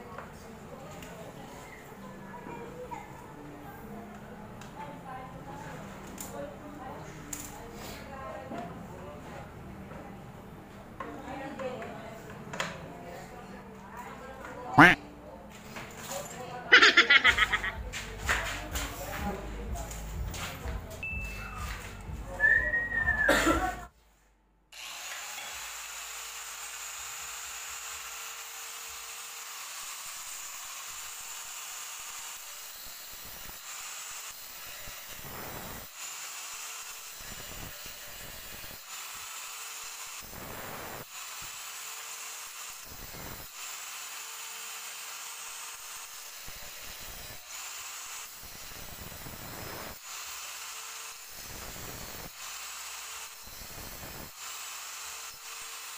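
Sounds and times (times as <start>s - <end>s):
angle grinder grinding steel pipe: 24.8s - 55.9s.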